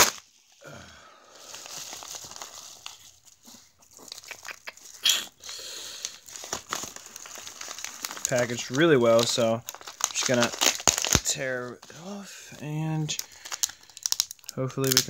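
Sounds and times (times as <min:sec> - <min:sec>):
bubble wrap and paper mailer crinkling: 0:00.0 - 0:15.0
paper rustle: 0:01.4 - 0:05.0, 0:05.9 - 0:12.2.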